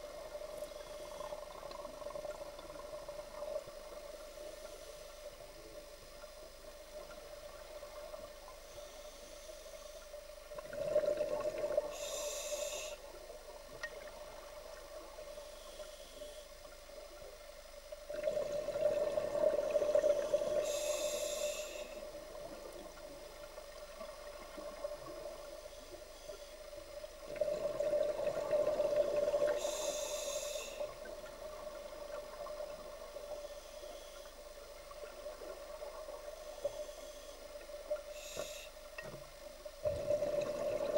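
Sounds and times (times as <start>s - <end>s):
steady hum: 0.0s - 40.9s
diver breathing through regulator: 11.9s - 13.0s, 20.0s - 22.1s, 29.4s - 31.0s.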